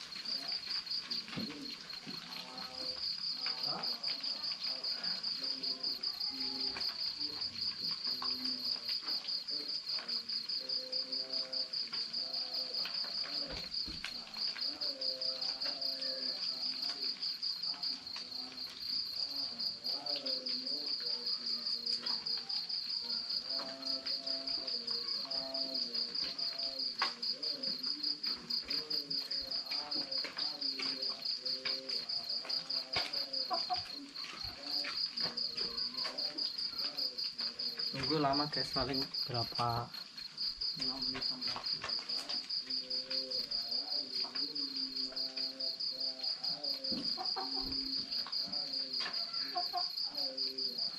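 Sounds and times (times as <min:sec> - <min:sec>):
crickets chirping: 0:00.0 - 0:50.9
wood fire crackling: 0:00.0 - 0:50.9.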